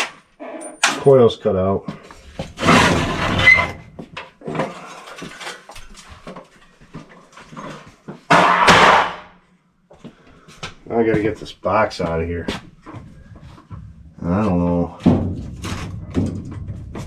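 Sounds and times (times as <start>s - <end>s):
loud clatter: 2.6s - 3.7s.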